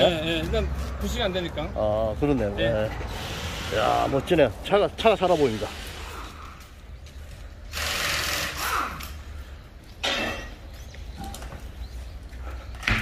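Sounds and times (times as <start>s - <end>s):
compressed air hissing: 3.1s - 4.3s, 5.1s - 6.6s.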